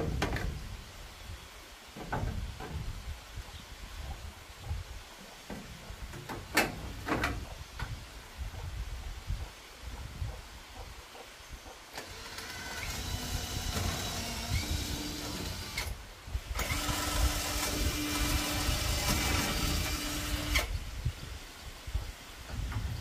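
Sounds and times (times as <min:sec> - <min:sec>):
small electric power tool motor: 0:12.0 - 0:15.9, 0:16.6 - 0:20.7.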